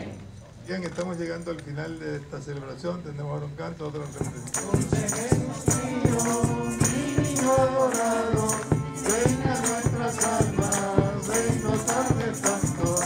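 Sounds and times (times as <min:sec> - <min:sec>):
voices singing christmas song: 0:00.0 - 0:00.3, 0:04.1 - 0:13.0
shaken percussion beat: 0:04.1 - 0:13.0.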